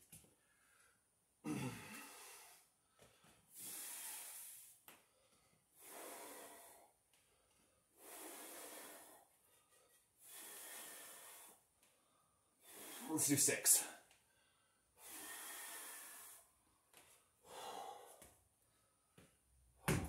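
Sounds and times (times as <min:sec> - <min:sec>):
man breathing hard: 0:00.3 - 0:19.3
voiced exhale: 0:03.6 - 0:04.7, 0:15.0 - 0:16.5.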